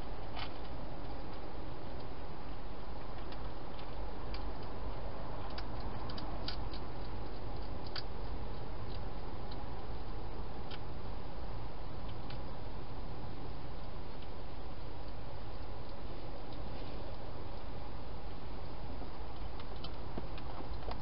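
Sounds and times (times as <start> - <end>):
steady low hiss: 0.0 - 21.0
hedgehog crunching food: 0.3 - 11.0.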